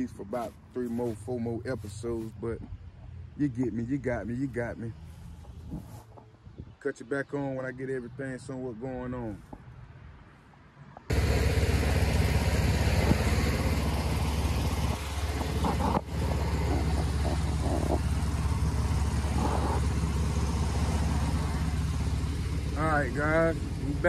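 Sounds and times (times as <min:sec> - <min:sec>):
air compressor running: 0:11.1 - 0:22.8.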